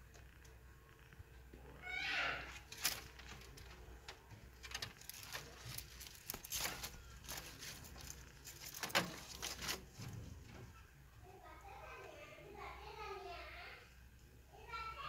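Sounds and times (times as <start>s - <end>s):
rabbit chewing leaf: 1.8s - 10.5s.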